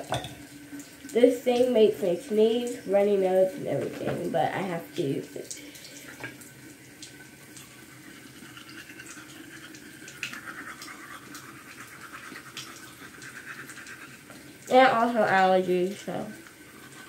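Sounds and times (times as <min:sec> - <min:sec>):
toothbrush scrubbing teeth: 0:07.5 - 0:17.0.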